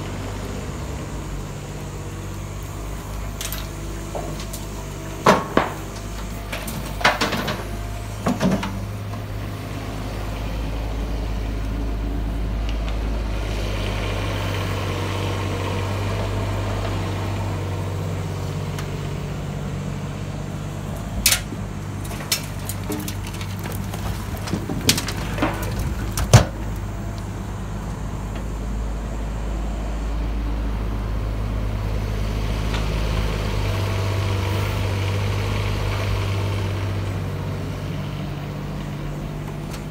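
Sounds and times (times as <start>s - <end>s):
excavator diesel engine running: 0.0s - 39.9s
metal clanks of bucket: 21.2s - 26.6s.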